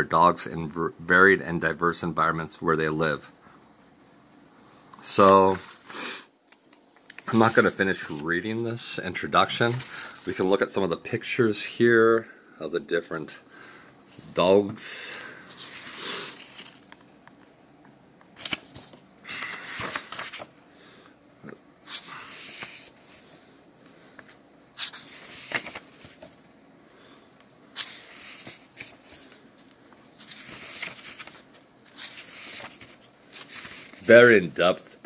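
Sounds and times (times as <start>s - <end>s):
book pages turning: 5.0s - 8.6s, 9.4s - 10.6s, 15.5s - 17.5s, 18.3s - 20.7s, 21.8s - 23.5s, 24.1s - 26.4s, 27.7s - 35.0s.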